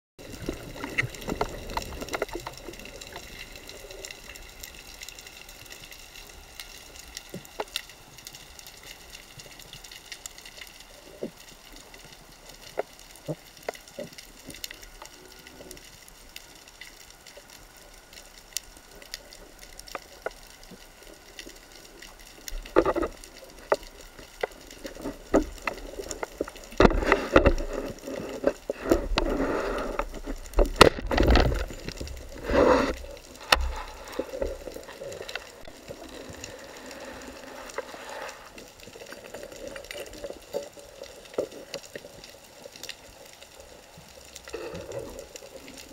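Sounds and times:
faint underwater hiss: 0.2s - 45.9s
sharp clicks and crackles: 0.2s - 45.9s
rushing water bursts: 21.0s - 45.9s.

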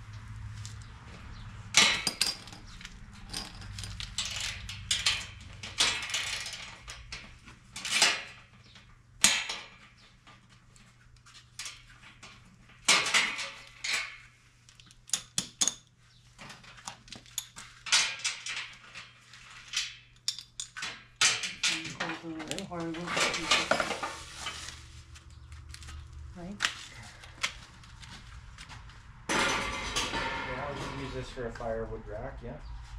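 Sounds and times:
metal parts clanking: 1.7s - 8.6s, 12.8s - 24.6s, 29.3s - 31.2s.

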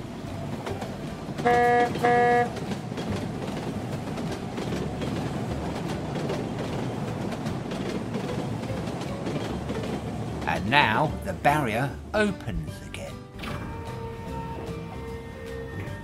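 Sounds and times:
toy train horn toots: 1.4s - 2.6s.

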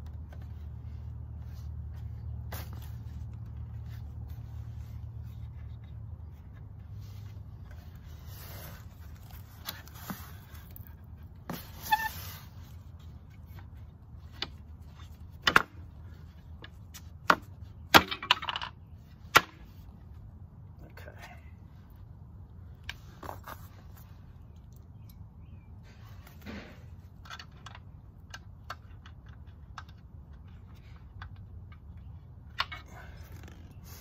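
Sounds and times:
wood rubbing and scraping on wood: 0.0s - 20.2s.

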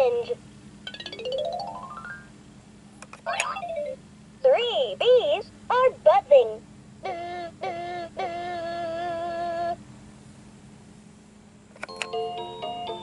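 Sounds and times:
toy electronic voice singing: 7.0s - 9.8s
toy button click: 11.8s - 12.2s.

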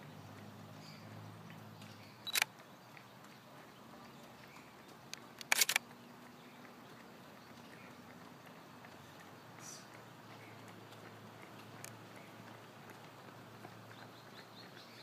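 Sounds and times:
camera shutter clicking: 2.2s - 2.5s, 5.4s - 5.8s.

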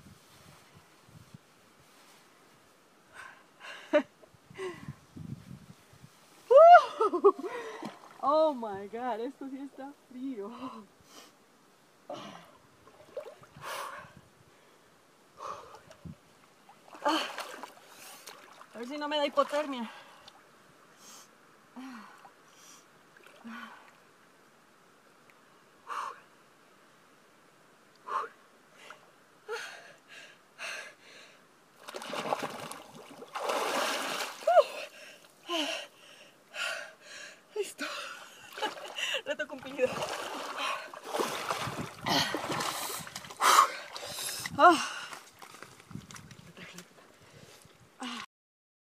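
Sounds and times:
water splashing and churning: 12.8s - 13.8s, 15.6s - 20.4s, 23.1s - 24.1s, 31.8s - 35.8s, 37.9s - 46.9s.

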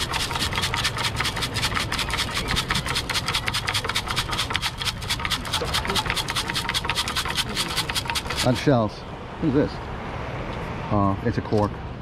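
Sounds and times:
sand and shells rattling in metal scoop: 0.0s - 8.7s.

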